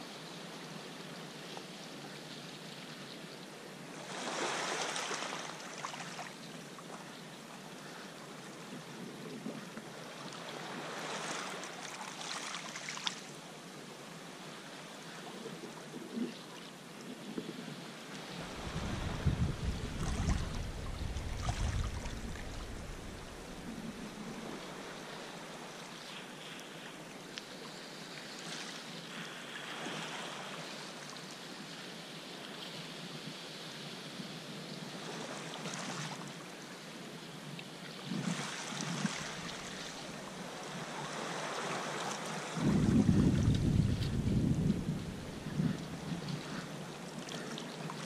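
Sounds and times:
low rumble: 18.4 - 24.7, 42.7 - 45.7
water lapping against rocks: 18.4 - 24.8
paddle swishing through water: 18.4 - 25.0, 41.1 - 48.0.

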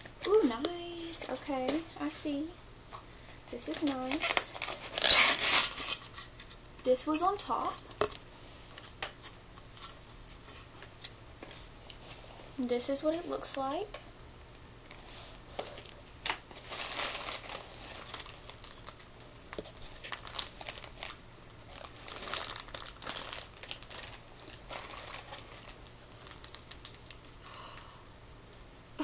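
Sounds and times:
plastic bags crinkling: 3.5 - 6.5, 15.0 - 27.3.

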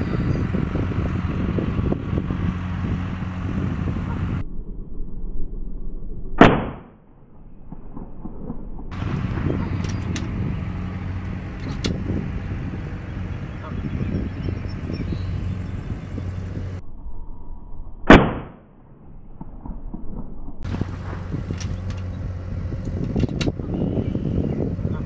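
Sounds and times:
steady low hum: 0.0 - 25.0
air rifle shot: 6.4 - 7.0, 18.1 - 18.7.

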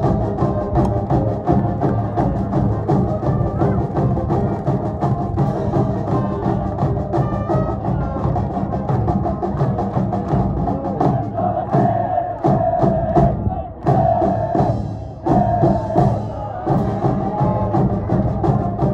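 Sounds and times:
cheering band playing: 0.0 - 18.9
drums beating: 0.0 - 18.9.

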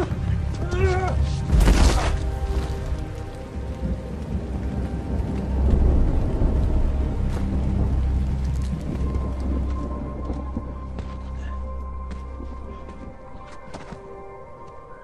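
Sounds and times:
dramatic background music: 0.0 - 15.0
low deep rumbling: 1.4 - 13.2.

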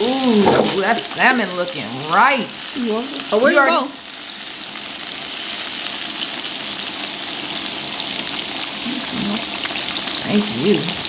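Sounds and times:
meat sizzling on grill plate: 0.0 - 11.0.

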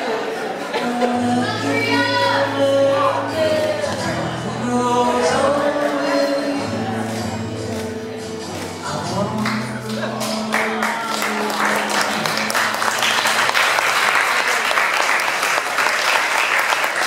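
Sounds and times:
crowd applause: 9.4 - 17.0.

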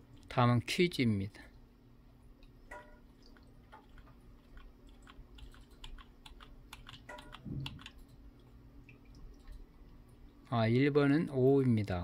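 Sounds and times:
faint electrical hum: 0.0 - 12.0
computer key clicks: 5.4 - 8.2.

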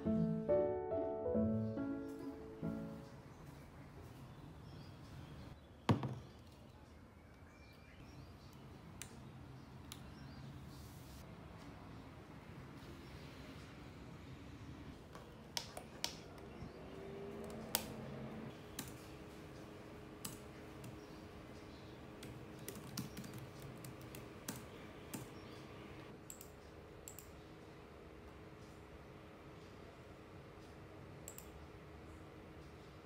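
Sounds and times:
typing on laptop keyboard: 22.2 - 25.3
mouse clicks: 31.3 - 31.5.

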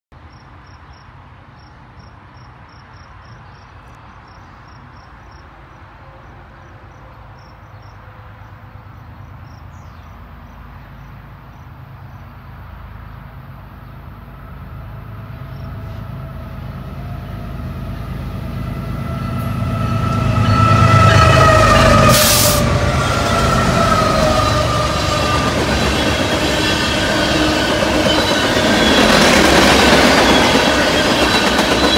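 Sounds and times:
diesel locomotive rumble: 12.6 - 31.9.

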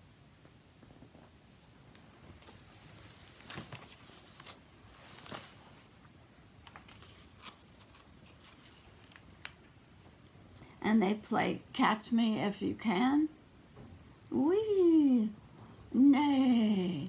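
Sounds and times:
book pages turning: 1.9 - 9.8.

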